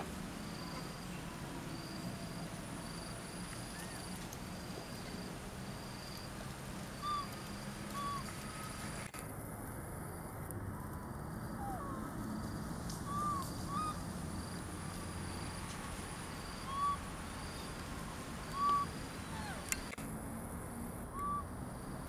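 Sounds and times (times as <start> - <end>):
insects humming: 0.0 - 9.2, 9.9 - 22.0
monkeys giving coo calls: 7.0 - 8.3, 11.6 - 12.1, 13.1 - 14.0, 16.6 - 17.0, 18.5 - 19.8.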